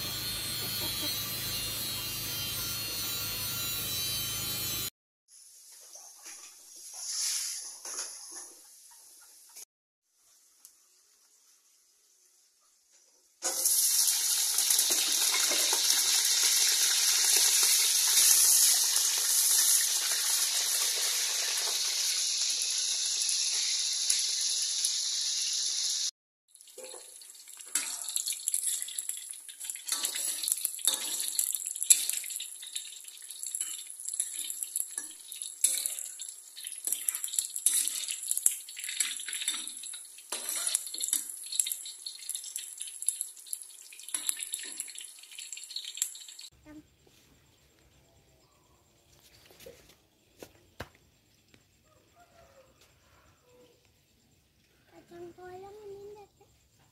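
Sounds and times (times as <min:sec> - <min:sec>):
food deep-frying in oil: 0:08.8 - 0:46.8
spatula turning food in wok: 0:26.7 - 0:46.5.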